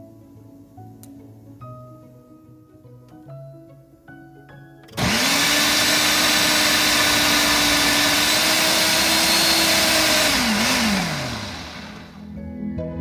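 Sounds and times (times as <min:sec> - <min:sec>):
blender motor running: 0:05.0 - 0:12.2.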